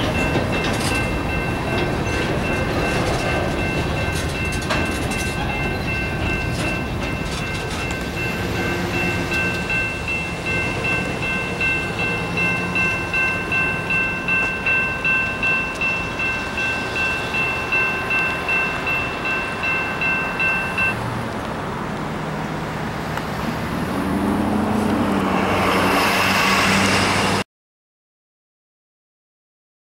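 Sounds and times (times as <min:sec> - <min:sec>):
electronic crossing bell ringing: 0:00.0 - 0:21.0
pickup truck passing: 0:05.5 - 0:27.4.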